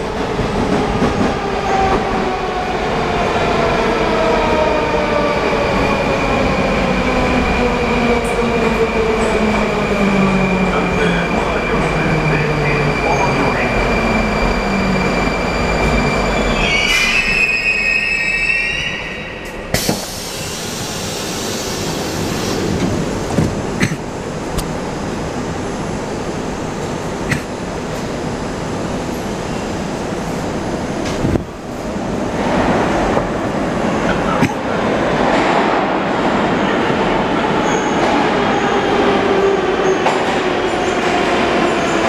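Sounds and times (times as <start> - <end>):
standing train rumble: 0.0 - 18.0, 19.0 - 42.0
metro train brakes squealing: 8.8 - 22.8, 37.4 - 38.9
train stopping clunk: 19.4 - 24.2.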